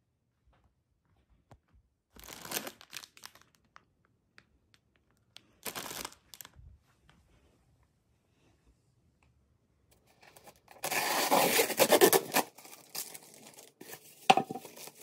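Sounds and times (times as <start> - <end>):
plastic packets crinkling: 2.2 - 3.9, 5.4 - 6.6, 10.3 - 15.0.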